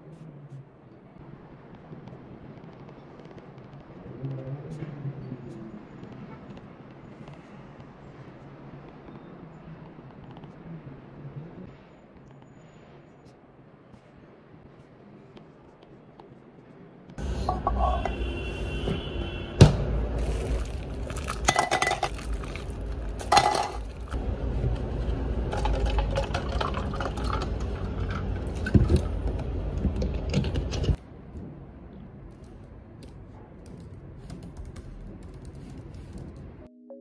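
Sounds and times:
soft keyboard typing: 32.3s - 36.7s.

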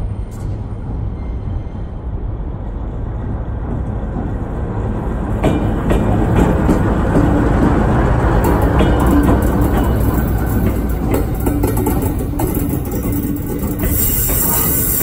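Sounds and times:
locomotive engine rumble: 0.0s - 15.0s
wheels clicking on rail: 5.4s - 15.0s.

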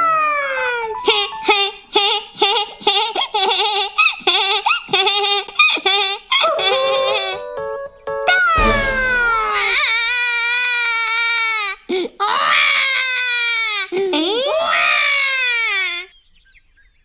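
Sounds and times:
cartoon kitten falling cry: 8.3s - 11.6s.

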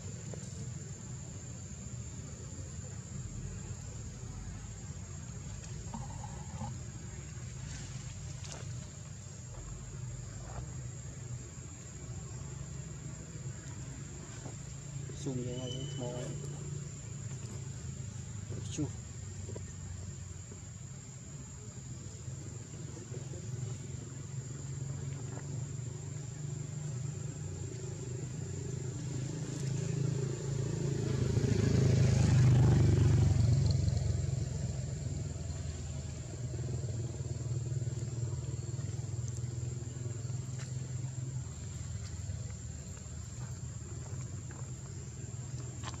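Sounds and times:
thin steady high tone: 15.1s - 16.7s
vehicle engine passing by: 26.7s - 46.0s.

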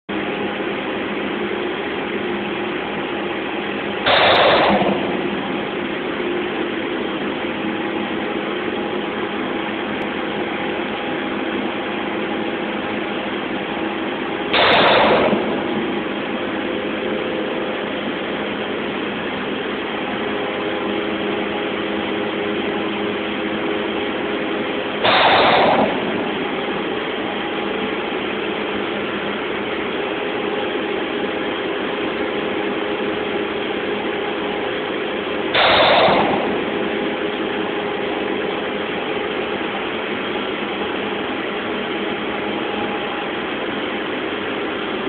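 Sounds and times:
machinery humming: 0.1s - 45.0s
loud rush of noise: 4.0s - 6.0s, 14.5s - 21.0s, 25.0s - 27.2s, 35.5s - 37.4s.

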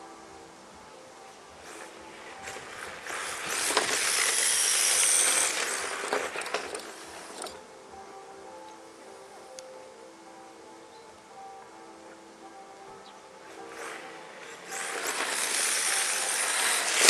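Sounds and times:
electric motor whine: 0.7s - 7.7s, 13.4s - 17.0s.

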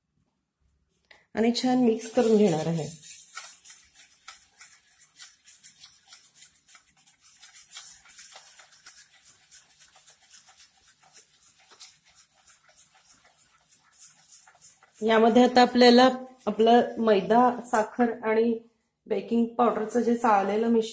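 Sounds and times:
whisk beating liquid in metal bowl: 2.0s - 17.2s.

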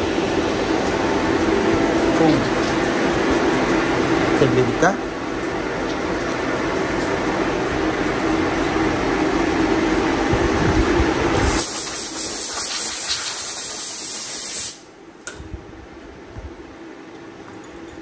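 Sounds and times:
compressed air blow gun hissing: 11.4s - 14.9s.

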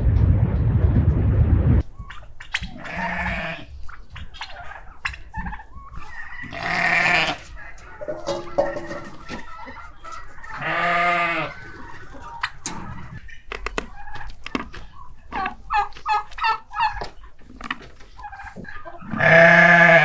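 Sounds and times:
sheep bleating: 2.8s - 3.7s, 6.5s - 7.5s, 10.6s - 11.6s, 19.0s - 20.0s.

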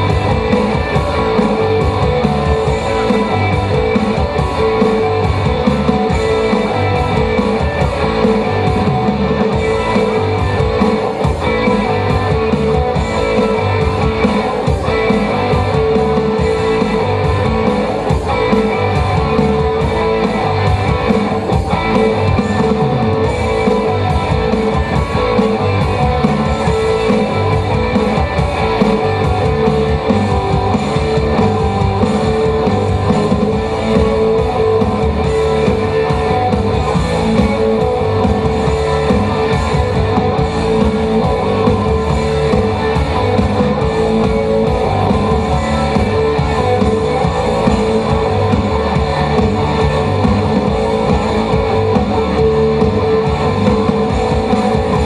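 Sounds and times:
guitar background music: 0.0s - 55.0s.

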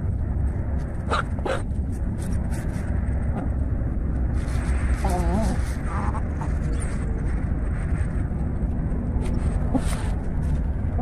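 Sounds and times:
low rumble: 0.0s - 11.0s.

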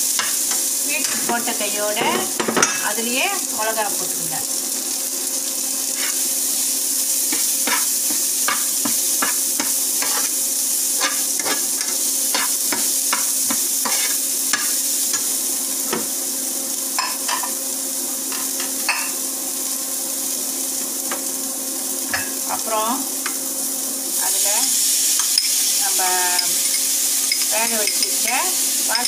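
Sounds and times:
vegetables sizzling in a pan: 0.0s - 29.0s
utensil scraping a pan: 6.0s - 6.2s, 7.3s - 10.4s, 11.0s - 14.7s.

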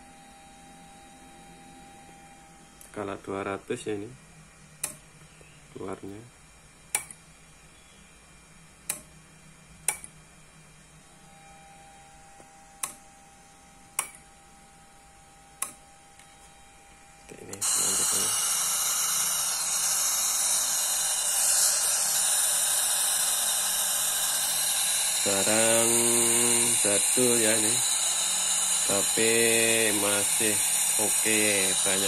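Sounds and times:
radio static hiss: 2.9s - 4.3s, 5.2s - 6.4s, 17.2s - 32.0s
sharp clicks: 4.8s - 5.1s, 6.9s - 7.2s, 8.8s - 9.1s, 9.8s - 10.2s, 12.8s - 13.0s, 14.0s - 14.2s, 15.6s - 15.8s.

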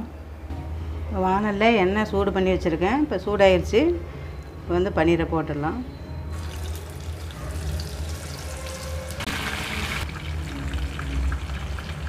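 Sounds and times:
food sizzling in hot oil: 6.4s - 12.0s.

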